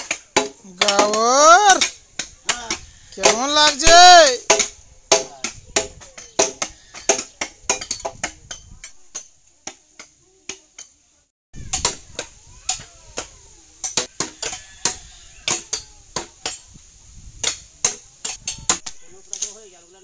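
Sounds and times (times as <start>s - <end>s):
blades chopping bamboo: 0.0s - 2.6s, 3.2s - 8.4s.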